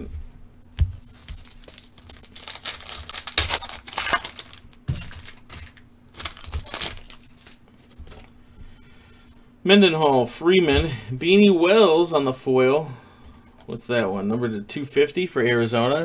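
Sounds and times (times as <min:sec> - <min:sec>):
foil wrapper crinkling: 0:01.0 - 0:08.3.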